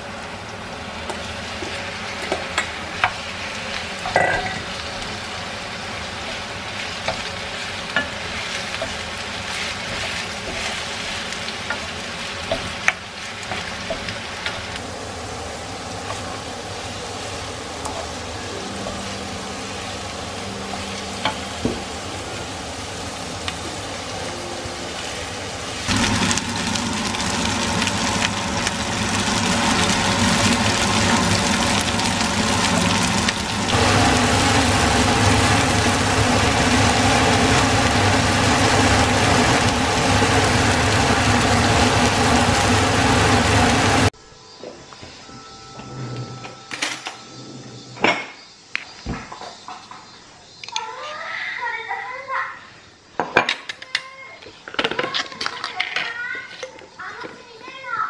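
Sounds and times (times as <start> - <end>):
food sizzling in a frying pan: 0.0 - 44.2
spatula stirring food: 5.0 - 14.8.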